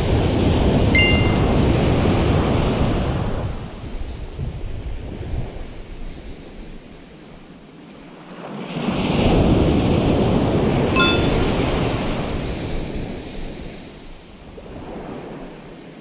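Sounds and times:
high-pitched click: 0:01.0 - 0:01.7, 0:11.0 - 0:11.5.

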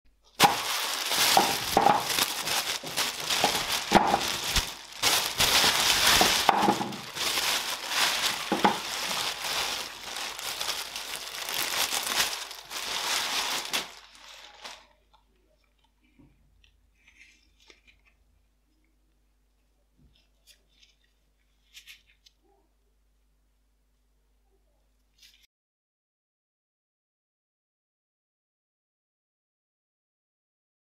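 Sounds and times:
paper and plastic bag crinkling: 0:00.2 - 0:16.0.

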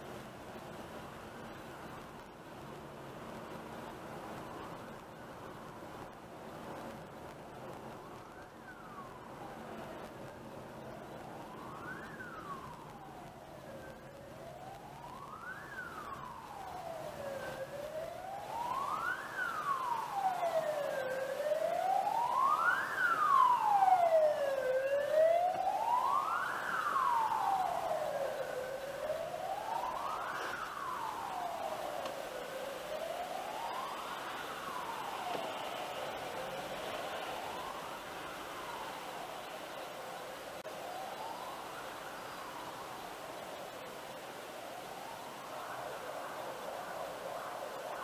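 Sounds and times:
emergency vehicle siren wailing: 0:02.6 - 0:48.0.

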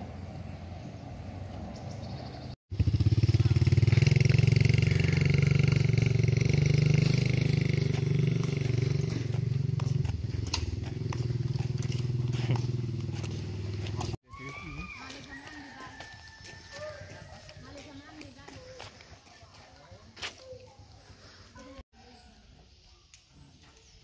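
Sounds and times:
vehicle engine running: 0:00.0 - 0:14.2.

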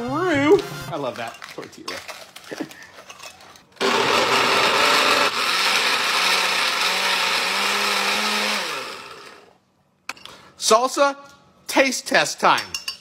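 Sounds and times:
blender motor running: 0:03.8 - 0:09.6.

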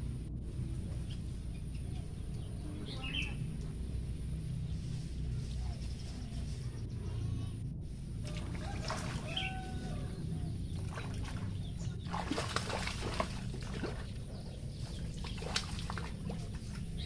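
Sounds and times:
fish splashing in water: 0:08.2 - 0:17.0.

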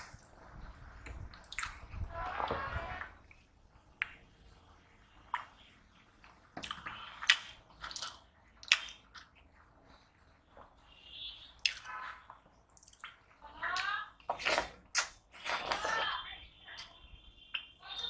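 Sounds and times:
wet mouth clicks and smacks: 0:01.4 - 0:01.8, 0:06.6 - 0:09.3, 0:11.6 - 0:11.9, 0:12.8 - 0:13.2.

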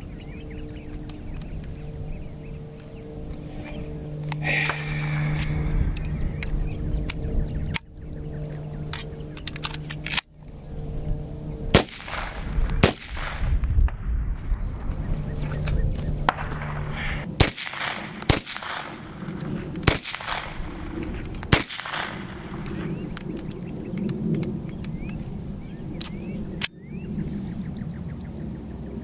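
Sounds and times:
pistol shots: 0:11.7 - 0:14.0, 0:16.3 - 0:20.9, 0:21.5 - 0:22.8.

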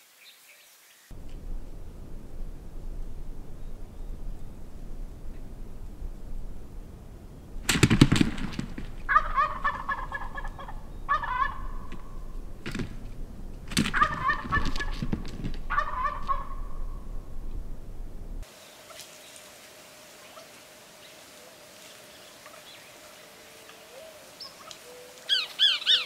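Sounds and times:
wild turkeys gobbling: 0:01.1 - 0:19.0.

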